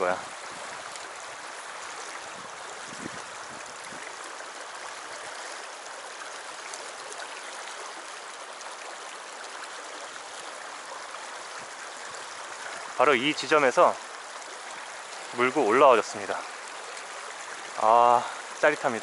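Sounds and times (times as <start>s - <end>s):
stream rushing over rocks: 0.0s - 19.0s.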